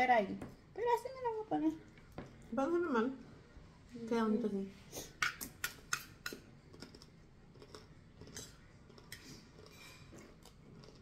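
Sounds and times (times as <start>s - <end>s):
quiet chewing: 4.9s - 11.0s.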